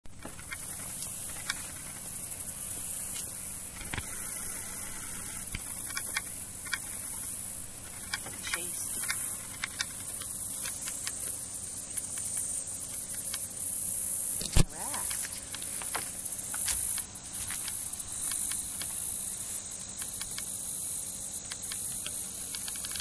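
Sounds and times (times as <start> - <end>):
high-pitched insect chorus: 0.1 - 23.0
faint clicks: 19.9 - 20.5.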